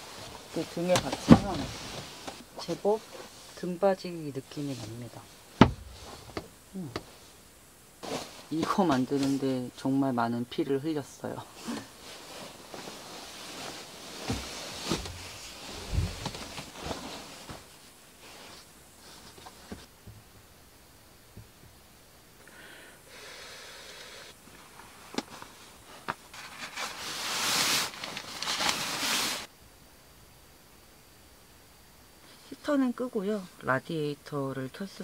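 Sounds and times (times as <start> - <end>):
blanket rustling: 0.0 - 3.6, 8.0 - 9.5, 11.5 - 19.9, 24.5 - 29.5
soft thumps on mattress: 5.6 - 7.1, 14.2 - 17.7.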